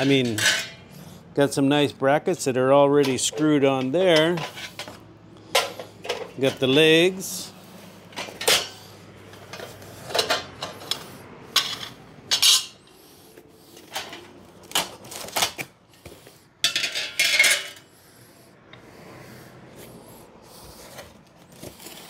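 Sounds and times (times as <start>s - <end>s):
metal set down on concrete: 0.0s - 0.8s, 13.8s - 17.9s
metal rails clanking and scraping: 0.0s - 1.2s, 1.8s - 7.5s, 8.1s - 13.0s, 13.6s - 16.0s, 16.6s - 17.9s.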